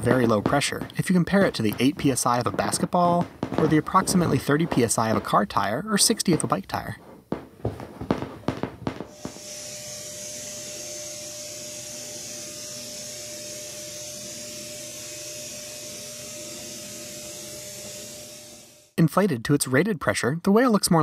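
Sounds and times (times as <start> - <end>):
rubs and knocks: 0.0 - 9.1
electric air pump humming: 8.9 - 18.8.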